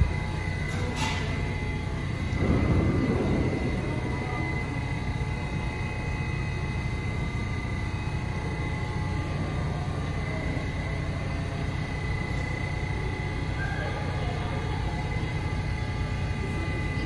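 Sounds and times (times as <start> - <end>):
subway train low rumble: 0.0 - 17.0.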